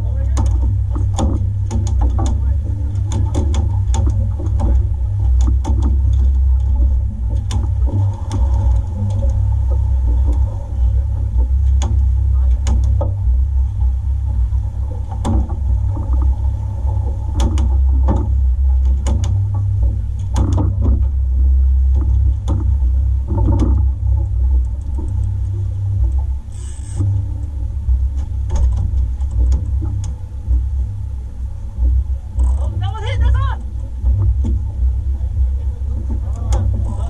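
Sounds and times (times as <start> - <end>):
boat low rumble: 0.0 - 37.0
fishing gear knocks and clicks: 0.3 - 10.6.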